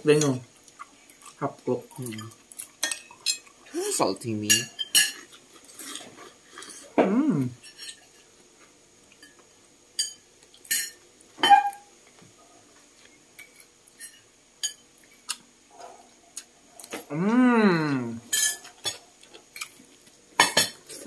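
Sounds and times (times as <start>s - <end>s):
short vocal sound: 7.0s - 7.6s, 17.1s - 18.2s.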